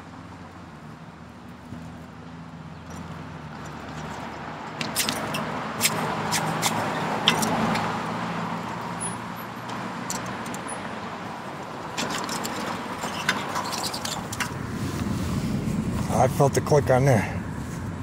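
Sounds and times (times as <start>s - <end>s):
road traffic: 0.0s - 18.0s
vehicle passing close by: 12.4s - 18.0s.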